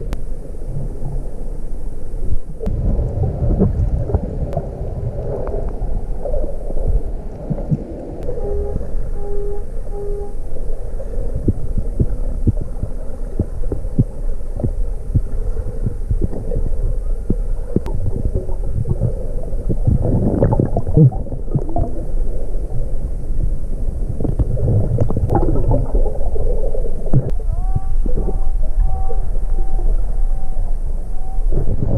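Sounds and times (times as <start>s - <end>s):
underwater low rumble: 0.0s - 31.9s
water rushing: 0.0s - 31.9s
underwater clicks and knocks: 11.4s - 22.0s, 24.2s - 26.0s.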